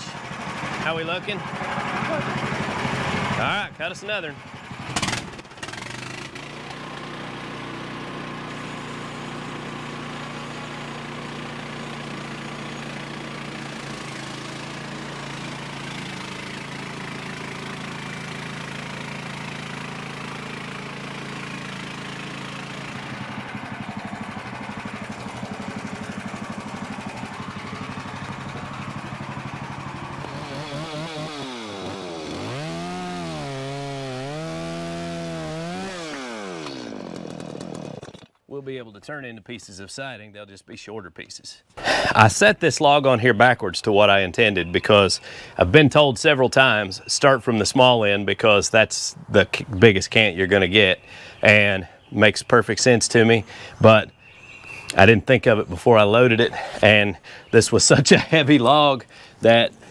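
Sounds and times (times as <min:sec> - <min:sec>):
sawmill engine running: 0:00.0 - 0:39.0, 0:54.6 - 0:59.9
band blade cutting wood: 0:04.8 - 0:23.3, 0:30.1 - 0:38.4.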